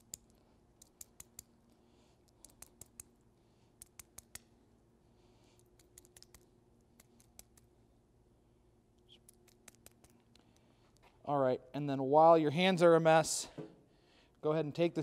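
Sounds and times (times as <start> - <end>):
sticky clicks of greasy fingers: 0.0 - 3.2, 3.8 - 4.5, 5.6 - 7.7, 9.0 - 10.7.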